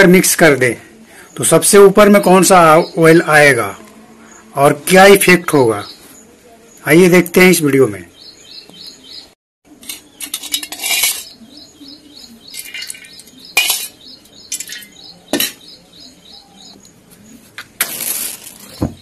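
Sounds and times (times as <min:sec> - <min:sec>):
spoon clinking against metal bowl: 0:09.8 - 0:11.4, 0:12.5 - 0:15.6.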